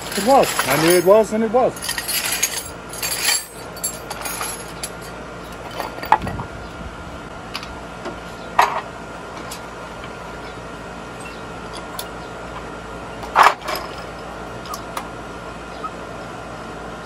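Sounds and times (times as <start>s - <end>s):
metal tools clinking: 0.0s - 6.4s, 9.4s - 15.0s.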